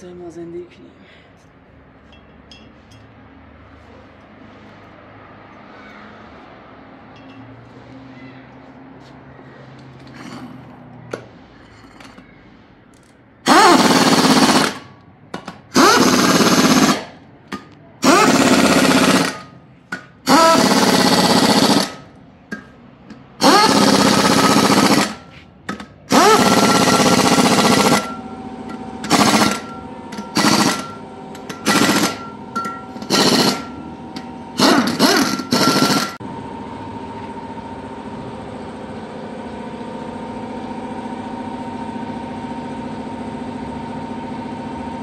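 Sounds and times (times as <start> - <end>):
steady background hum: 0.0 - 45.0
power tool whining bursts: 13.4 - 14.9, 15.7 - 17.2, 18.0 - 19.5, 20.2 - 22.1, 23.4 - 25.2, 26.1 - 36.2.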